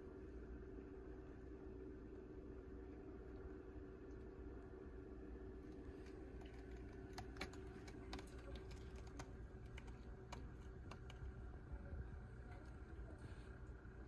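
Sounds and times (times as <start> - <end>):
faint steady hum: 0.0 - 14.0
kittens' claws clicking: 5.9 - 11.7.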